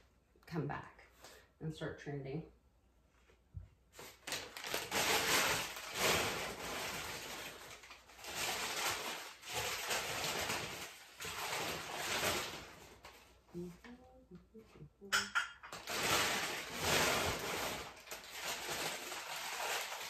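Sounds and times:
packing paper rustling: 0:03.9 - 0:13.4, 0:15.7 - 0:20.0.

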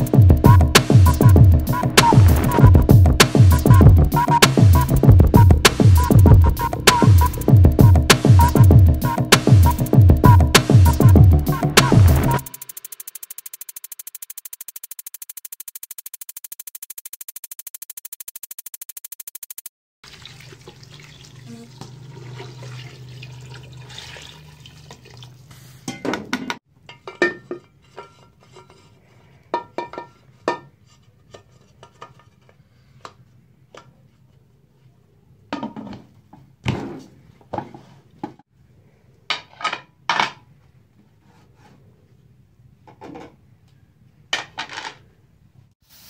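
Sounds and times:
water pouring into a pot: 0:20.0 - 0:25.5.

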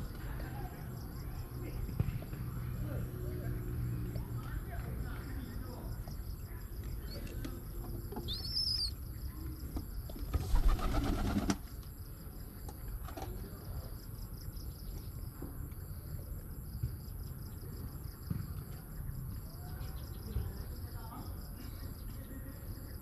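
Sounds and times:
high chirp: 0:08.2 - 0:09.0
pigeon wings flapping: 0:10.3 - 0:11.7.

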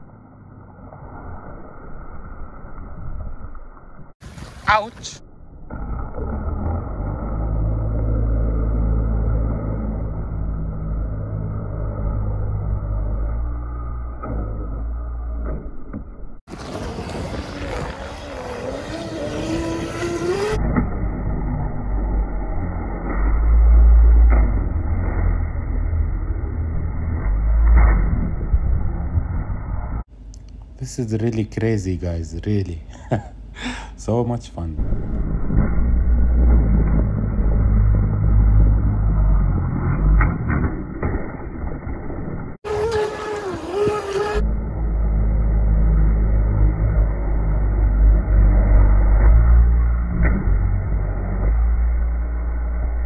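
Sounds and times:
muffled low rumble: 0:00.0 - 0:18.4, 0:19.2 - 0:53.0
wind buffeting microphone: 0:16.5 - 0:20.6
electric motor whining: 0:16.6 - 0:24.2, 0:42.7 - 0:52.6.

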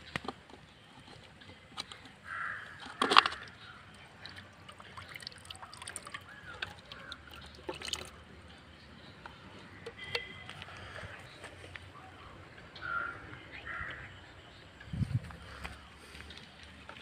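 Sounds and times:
plastic bottles clicking: 0:00.0 - 0:08.2, 0:09.2 - 0:11.2
water sloshing in a bucket: 0:00.4 - 0:11.2, 0:16.0 - 0:17.0.

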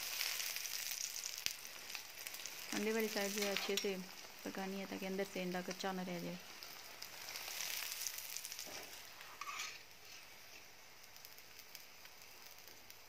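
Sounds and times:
flatbread sizzling in fat: 0:00.0 - 0:13.0
metal spatula scraping: 0:03.2 - 0:04.0, 0:08.6 - 0:10.7.

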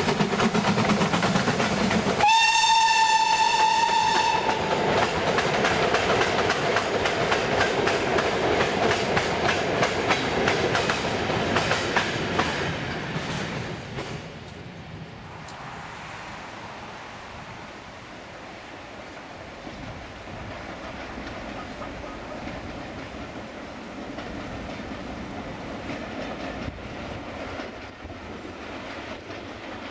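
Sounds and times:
steam locomotive exhaust beating: 0:00.0 - 0:29.9
steam whistle blast: 0:02.2 - 0:04.7.

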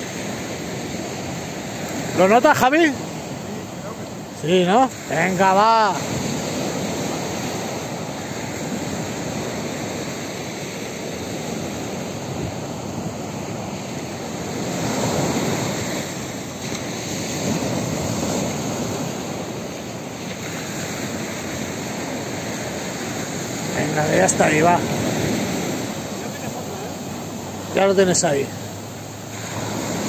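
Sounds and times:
surf breaking on beach: 0:00.0 - 0:30.0.

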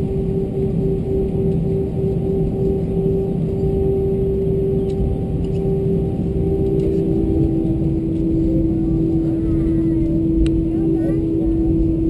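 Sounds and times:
airplane cabin rumble: 0:00.0 - 0:12.0
jet engine hum: 0:00.0 - 0:12.0.

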